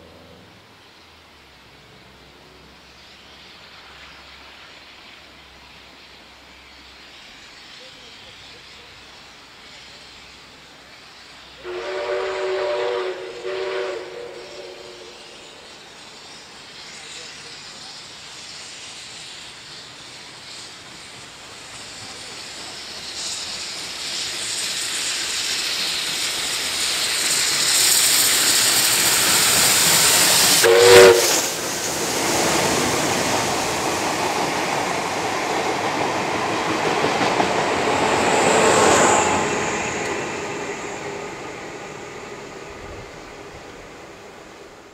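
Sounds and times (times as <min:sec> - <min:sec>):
steam locomotive whistle toot: 0:11.5 - 0:15.9, 0:26.8 - 0:32.0
train carriages rolling clickety-clack: 0:12.9 - 0:44.9.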